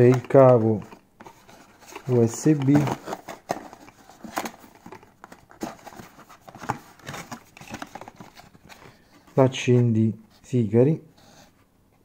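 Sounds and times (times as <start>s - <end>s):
packaging rustling: 0.0s - 9.5s.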